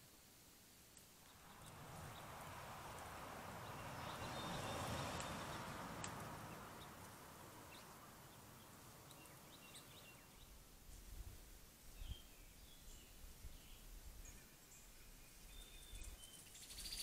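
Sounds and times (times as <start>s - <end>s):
soft rushing noise: 1.3s - 10.0s
light click: 5.2s - 5.4s, 6.0s - 6.4s
faint bird chirps: 11.9s - 17.0s.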